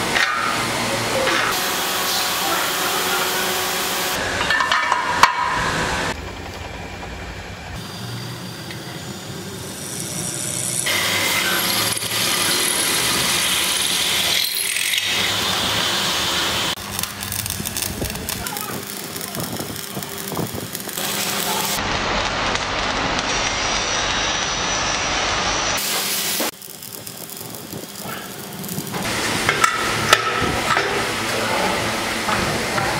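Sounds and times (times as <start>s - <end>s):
hydraulic bending machine running: 0.0s - 32.9s
pillar drill boring through steel: 7.8s - 21.8s.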